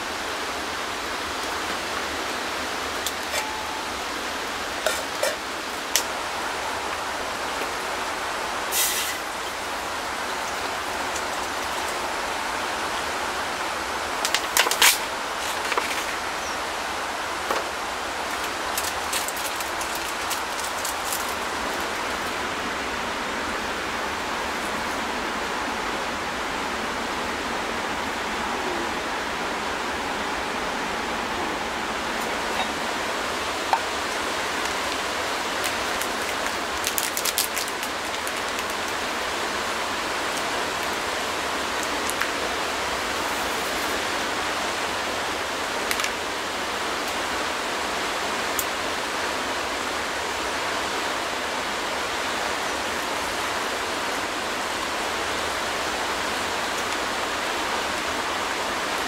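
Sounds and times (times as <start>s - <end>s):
rain hissing on a tarp: 0.0s - 59.0s.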